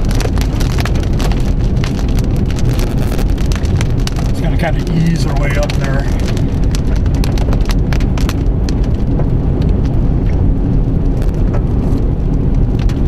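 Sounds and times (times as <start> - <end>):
low rumble of car: 0.0 - 13.0
rain hitting car roof: 0.0 - 13.0
storm wind: 0.0 - 13.0.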